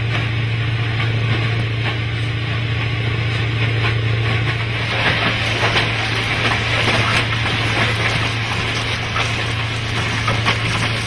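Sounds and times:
machine engine humming: 0.0 - 11.0
plough scraping stones: 4.9 - 11.0.

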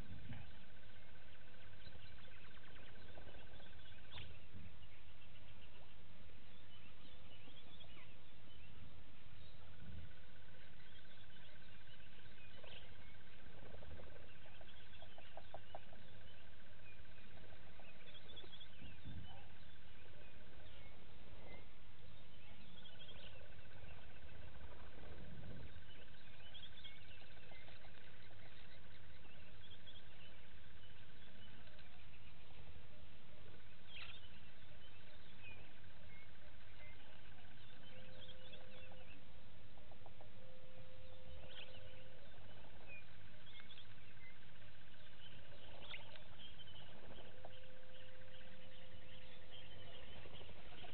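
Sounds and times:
bird chirps and calls: 33.4 - 50.9.

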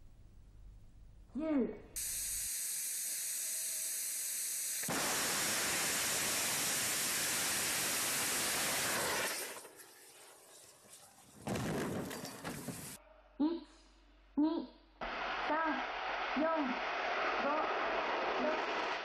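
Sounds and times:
steady hiss: 2.0 - 9.9
rocket exploding: 4.9 - 9.6, 15.3 - 19.0.

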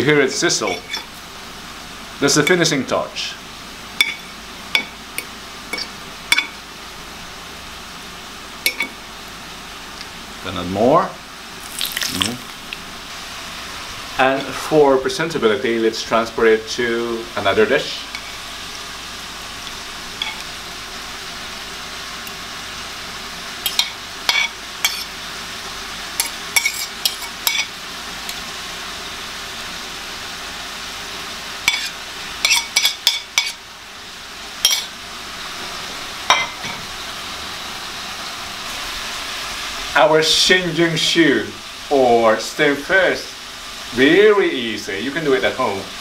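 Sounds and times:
steady background hiss: 0.0 - 46.0
fork scraping porcelain plates: 0.6 - 1.1, 20.2 - 20.5, 26.2 - 27.7.

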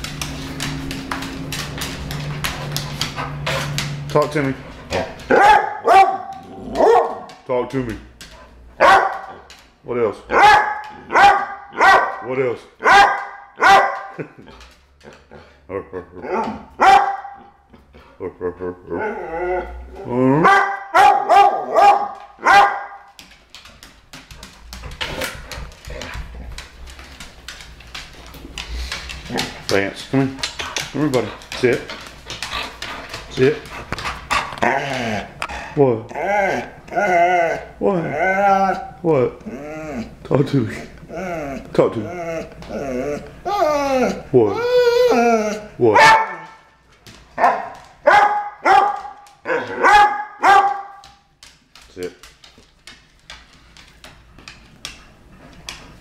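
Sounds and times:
dog claws clicking on floor: 0.0 - 18.0, 19.6 - 56.0
dog barking with rising pitch: 5.3 - 7.3, 8.8 - 9.4, 10.3 - 12.2, 12.8 - 14.1, 16.3 - 17.4, 20.4 - 23.0, 45.9 - 46.5, 47.4 - 51.0
dog yowling: 41.1 - 46.4.

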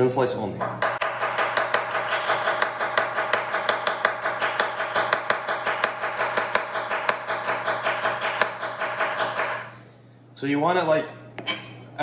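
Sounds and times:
knife chopping onion on wooden board: 0.8 - 9.7.

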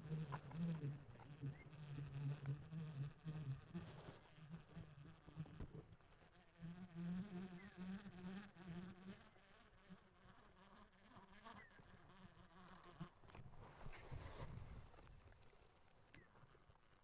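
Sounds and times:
flying insect buzzing: 0.0 - 13.2.

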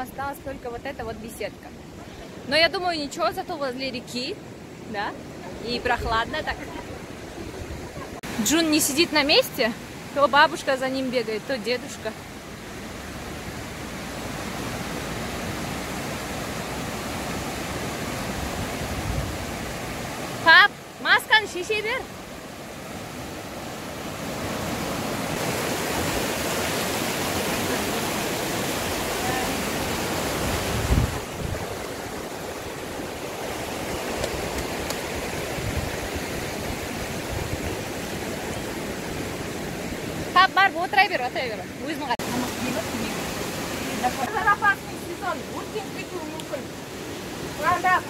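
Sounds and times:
river rushing over rocks: 0.0 - 48.0
wind buffeting microphone: 5.4 - 8.2, 18.0 - 20.2, 24.1 - 40.3.

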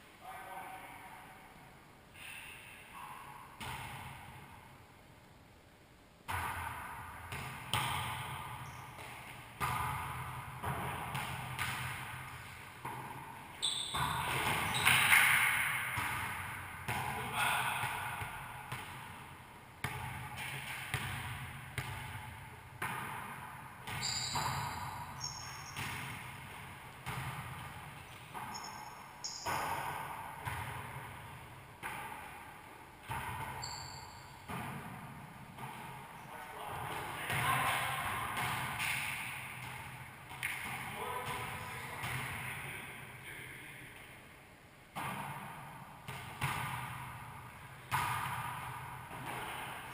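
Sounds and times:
ball smacking with ringing echo: 3.0 - 4.5, 6.3 - 42.8, 44.9 - 49.9
sneakers squeaking on wooden floor: 8.6 - 9.4, 13.6 - 15.2, 23.9 - 26.1, 28.0 - 29.8, 33.6 - 34.5.

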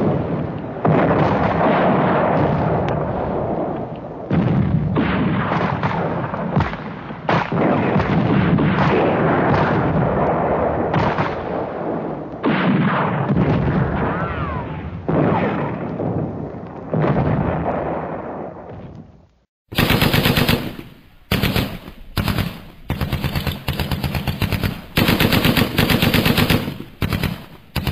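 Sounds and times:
heavy explosions: 0.0 - 19.1, 19.7 - 27.9
machine-gun fire: 19.7 - 27.9.

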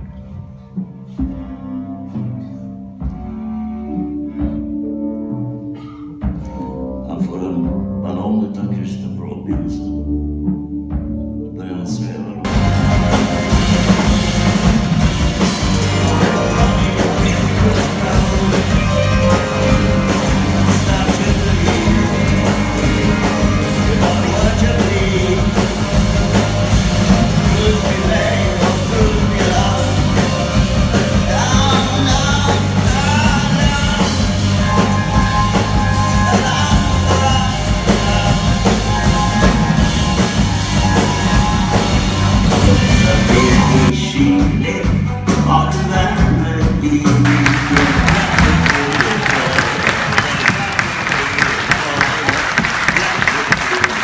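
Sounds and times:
live rock band: 0.0 - 54.0
electric guitars: 12.3 - 50.5
drum kit beat: 12.4 - 54.0.

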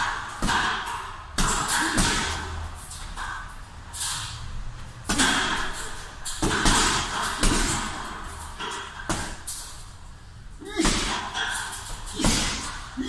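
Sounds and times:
punches thudding on heavy bag: 0.0 - 2.5, 5.0 - 9.5, 10.6 - 13.0.

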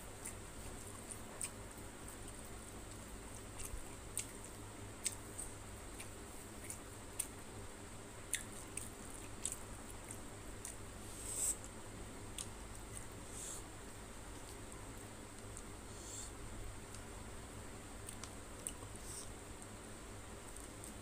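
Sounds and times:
chewing: 0.2 - 7.4, 8.3 - 10.8, 18.0 - 19.3.

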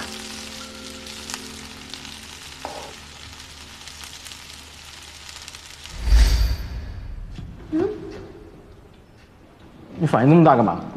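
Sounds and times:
food sizzling in frying pan: 0.0 - 7.2.

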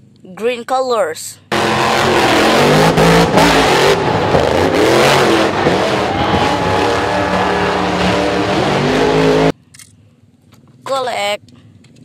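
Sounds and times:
monster truck engines revving: 1.5 - 9.5.

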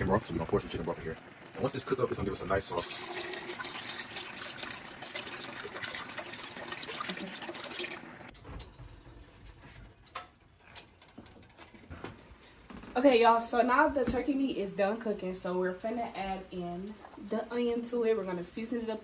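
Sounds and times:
liquid pouring into a pot: 2.5 - 8.3.

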